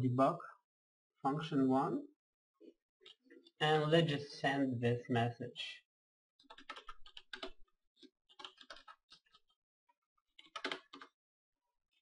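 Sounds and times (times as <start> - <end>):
faint typing on keyboard: 6.4 - 9.6, 10.2 - 11.2.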